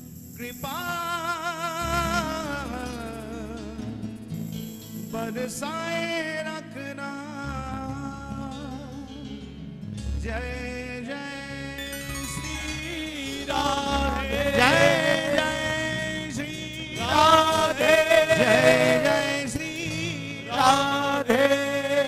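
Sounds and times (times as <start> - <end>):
men singing devotional song: 0.4 - 3.8, 5.1 - 8.8, 12.6 - 22.0
instrumental accompaniment: 11.8 - 21.0.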